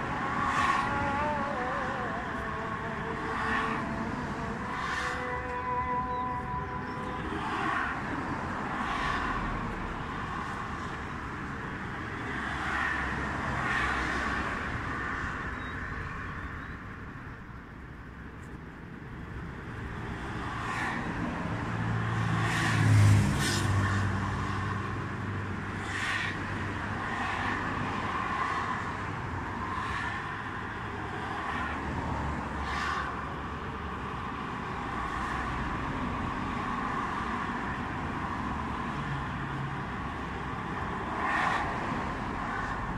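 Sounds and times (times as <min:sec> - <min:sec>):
cars passing: 0:00.0 - 0:42.9
steady traffic hum: 0:00.0 - 0:42.9.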